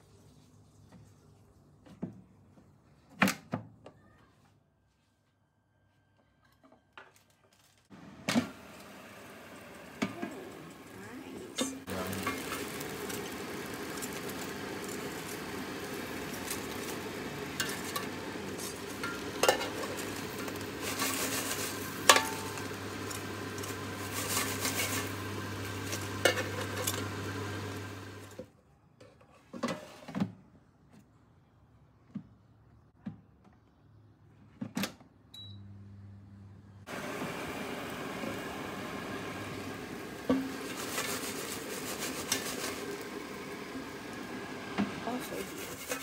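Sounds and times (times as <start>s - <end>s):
air fryer fan hum: 7.9s - 28.4s, 35.4s - 46.0s
tongs scraping metal basket: 40.6s - 42.8s, 45.1s - 46.0s.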